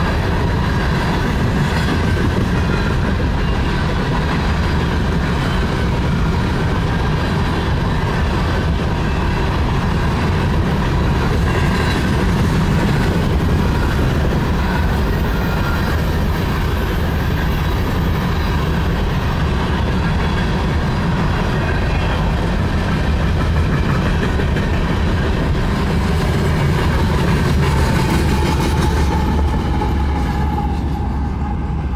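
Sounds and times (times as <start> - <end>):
locomotive passing: 0.0 - 31.9
train wheels clattering on rail: 0.0 - 31.9.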